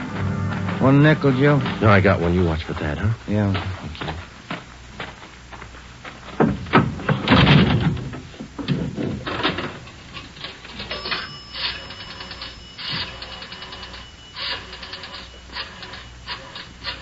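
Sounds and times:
faint high tone: 0.0 - 2.0.

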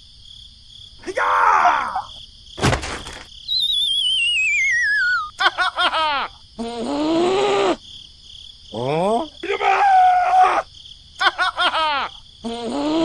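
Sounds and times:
squeaky falling chirps: 2.6 - 5.4
wobbling whistle sliding down: 3.5 - 5.3
high-pitched background tone: 3.8 - 5.3.

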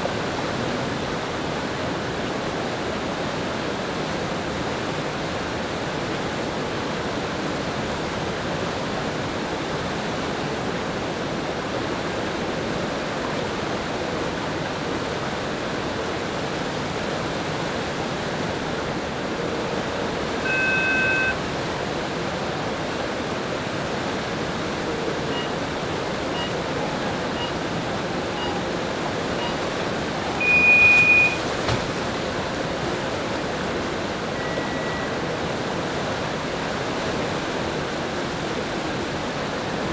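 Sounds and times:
whitewater rapids rushing: 0.0 - 39.9
short electronic beeps: 20.4 - 21.4, 25.3 - 25.6, 26.3 - 27.6, 28.2 - 31.4, 34.4 - 35.2
two-tone electronic beep: 20.4 - 21.4, 25.3 - 25.6, 26.3 - 27.6, 28.2 - 28.7, 29.3 - 29.6, 30.2 - 31.4, 34.4 - 35.2.

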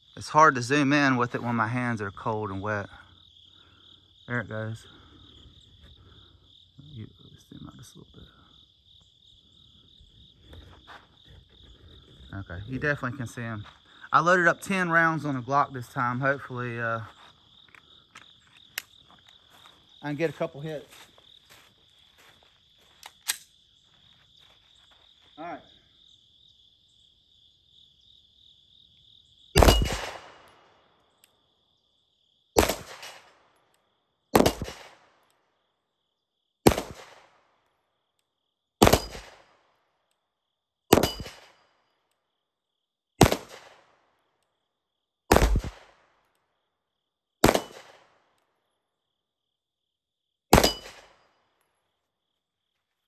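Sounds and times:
crickets chirping: 0.0 - 53.0
pistol shots: 29.6 - 30.7, 32.6 - 33.6, 34.3 - 35.2, 36.6 - 37.5, 38.8 - 39.6, 40.9 - 41.6, 43.2 - 44.0, 45.3 - 46.2, 47.4 - 48.3, 50.5 - 51.2.

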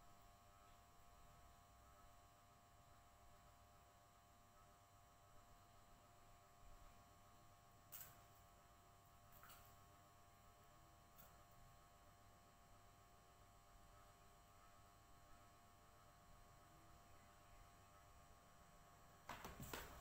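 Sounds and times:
faint electrical hum: 0.0 - 20.0.

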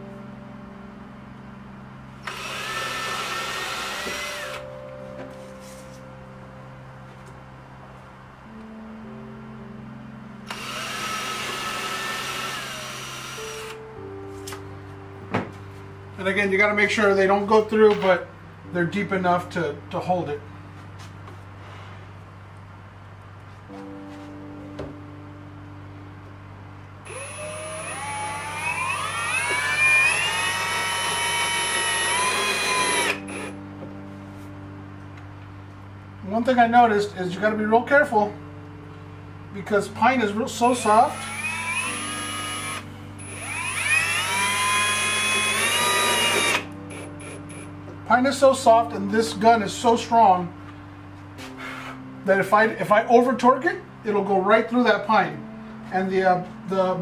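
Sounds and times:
cordless drill motor whining: 2.2 - 4.7, 10.5 - 13.8, 27.1 - 33.6, 41.1 - 47.7.

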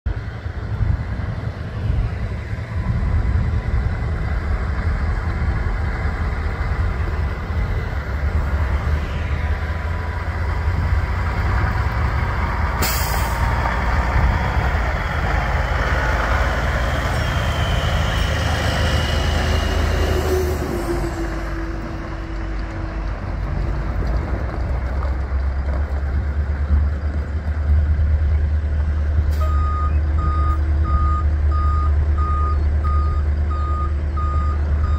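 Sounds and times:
diesel truck engine running: 0.1 - 34.9
air brake hiss: 12.8 - 13.5.

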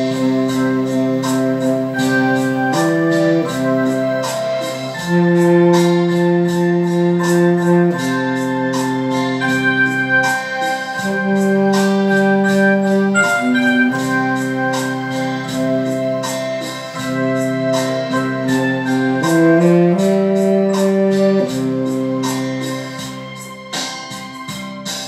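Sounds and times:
keyboard playing organ-like hymn chords: 0.0 - 25.0
light percussion beat: 0.0 - 25.0.

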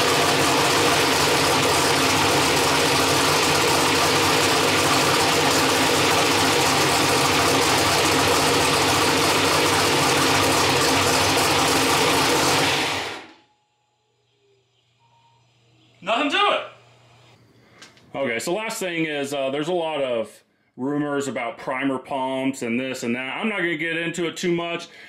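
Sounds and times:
race engine running: 0.0 - 13.4.

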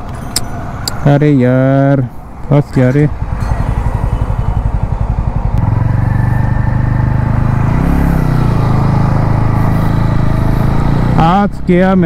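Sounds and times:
motorcycle engine revving unevenly: 3.1 - 12.0.

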